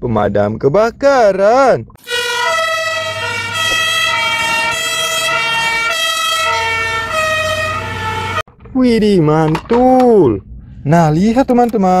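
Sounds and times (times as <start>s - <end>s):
toy electronic siren: 2.0s - 8.4s.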